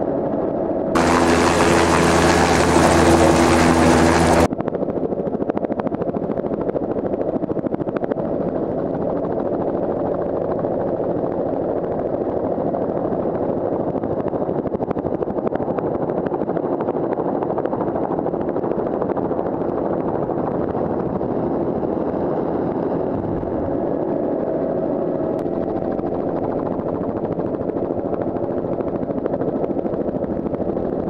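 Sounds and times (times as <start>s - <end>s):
turbine engine running: 1.0s - 4.5s
helicopter rotor beating: 1.0s - 20.1s, 20.8s - 31.0s.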